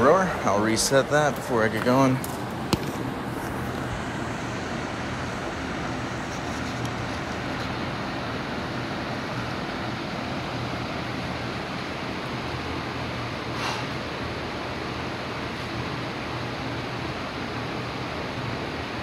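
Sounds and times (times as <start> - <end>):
steady rushing noise: 0.0 - 13.5.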